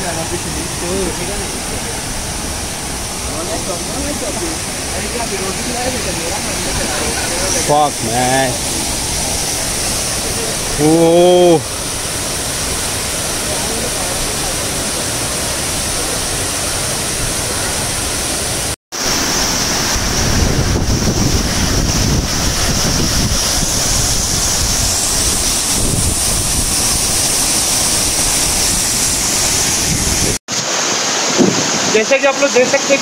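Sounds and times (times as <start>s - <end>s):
waterfall rushing: 0.0s - 33.0s
wind buffeting microphone: 20.0s - 30.4s.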